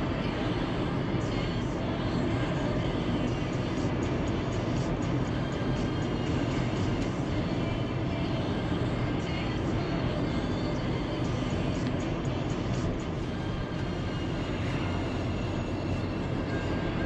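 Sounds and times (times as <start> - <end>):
car road and engine noise: 0.0 - 17.0.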